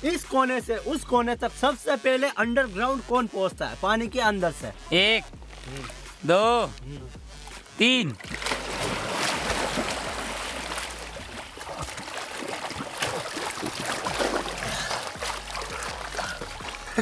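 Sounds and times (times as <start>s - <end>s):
water splashing from swimmers: 7.4s - 17.0s.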